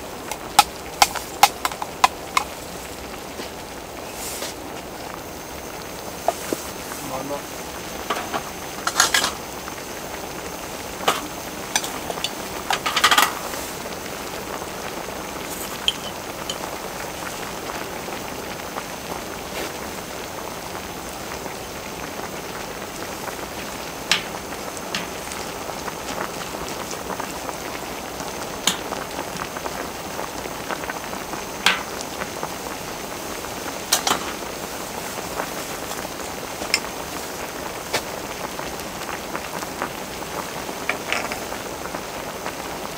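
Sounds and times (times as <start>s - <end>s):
stew bubbling: 0.0s - 42.9s
sharp pops: 0.2s - 2.6s, 11.0s - 13.6s, 23.6s - 26.6s, 28.6s - 29.5s, 31.6s - 32.3s.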